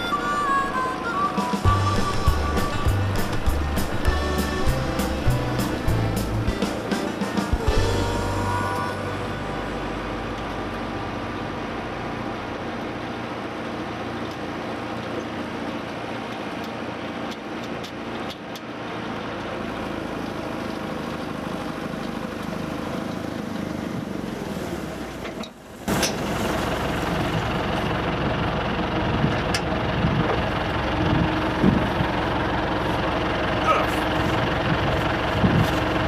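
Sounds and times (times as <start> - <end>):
tractor engine running: 0.0 - 36.0
snowblower throwing snow: 25.7 - 28.0.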